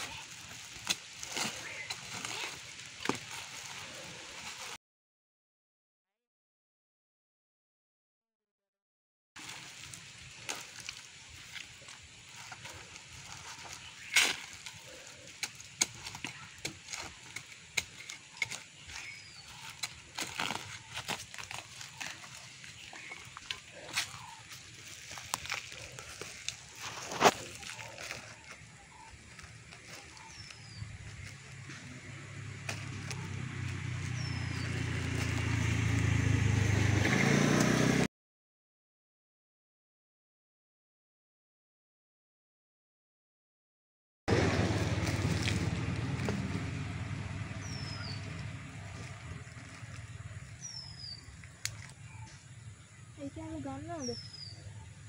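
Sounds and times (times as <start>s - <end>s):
hands rustling soil in sack: 0.0s - 4.8s, 9.4s - 35.9s, 44.3s - 52.0s
vehicle engine hum approaching: 16.5s - 38.1s, 44.3s - 53.3s.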